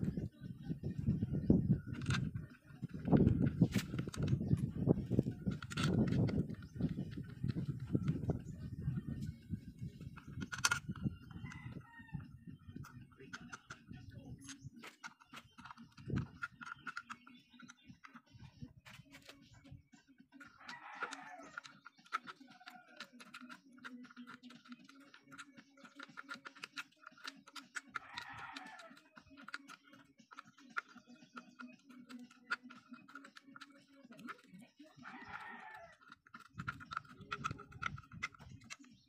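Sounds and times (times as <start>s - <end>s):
rooster crowing: 11.4s - 12.4s, 20.6s - 21.6s, 28.0s - 29.0s, 35.0s - 36.2s.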